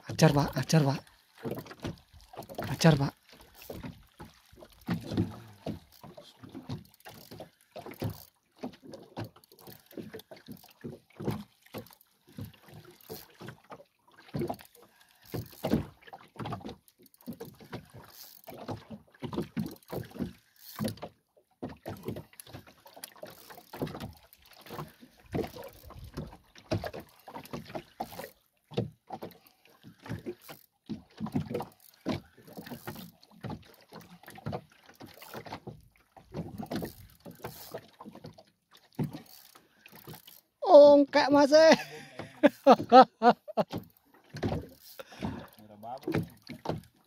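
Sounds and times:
water lapping against boat hull: 0.0s - 47.0s.

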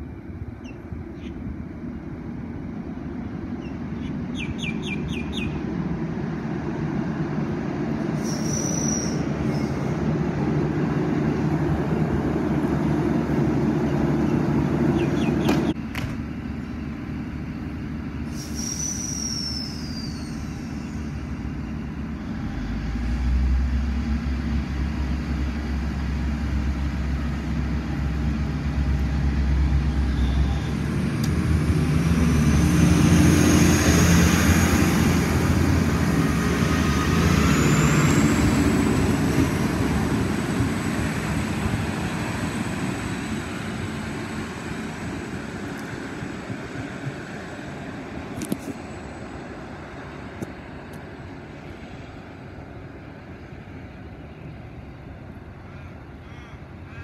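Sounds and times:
diesel railcar engine: 0.0s - 57.0s
train wheel noise: 5.6s - 55.4s
brakes squealing: 8.2s - 10.0s, 18.2s - 22.5s, 29.7s - 31.1s.

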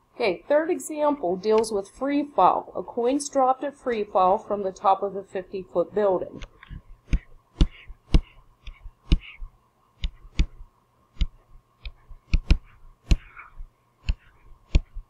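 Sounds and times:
stylus clicking on tablet: 6.4s - 10.6s, 11.2s - 13.4s.

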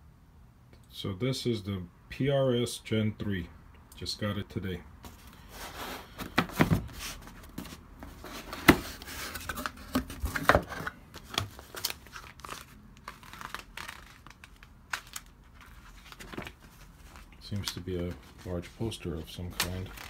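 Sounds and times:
cardboard and paper rustling: 5.0s - 20.0s.

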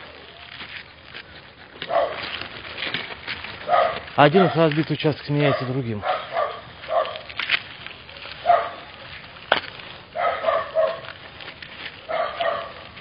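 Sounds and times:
dog barking: 1.8s - 2.2s, 3.6s - 4.7s, 5.4s - 7.3s, 8.4s - 8.9s, 10.2s - 11.1s, 12.1s - 13.0s.

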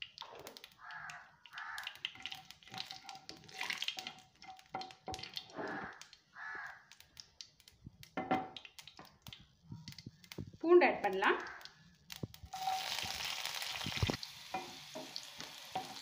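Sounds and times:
seeds sizzling in hot oil: 10.2s - 16.0s.

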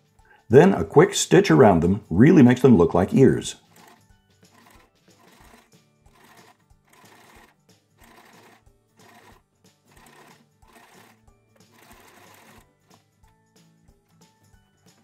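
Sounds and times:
soft background music: 0.0s - 15.0s
sewing machine stitching: 3.6s - 13.0s.

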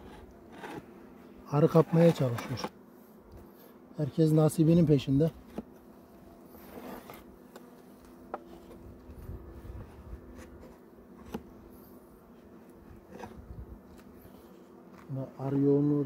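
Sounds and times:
metal tool scraping wood: 0.0s - 0.9s, 6.6s - 7.3s.

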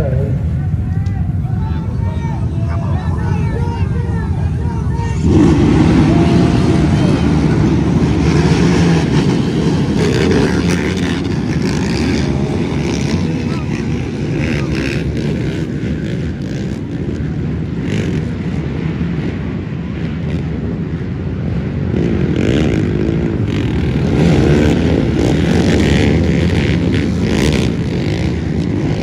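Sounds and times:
atv engines revving: 0.0s - 29.0s.

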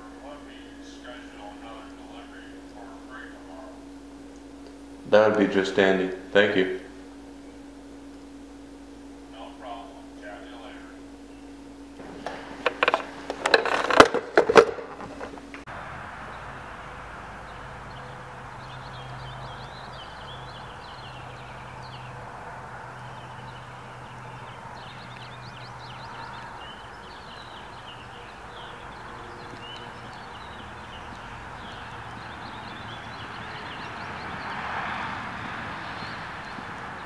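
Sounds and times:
steady background hiss: 0.0s - 34.5s
broad noise: 0.0s - 37.0s
low hum: 0.0s - 37.0s
small birds chirping: 7.0s - 12.0s, 16.2s - 37.0s.

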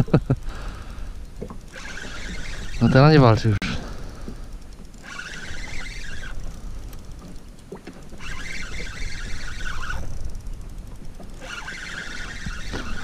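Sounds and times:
fishing reel whirring: 0.0s - 13.0s
wind and water rumble: 0.0s - 13.0s.

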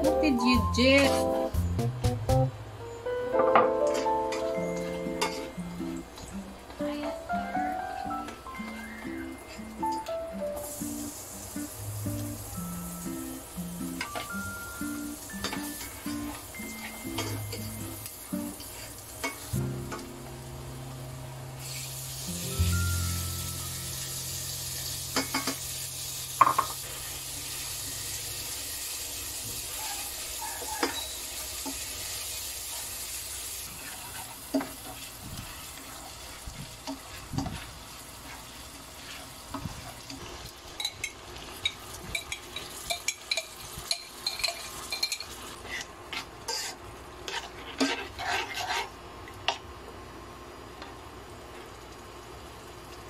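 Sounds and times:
meat sizzling in a frying pan: 10.5s - 48.1s.

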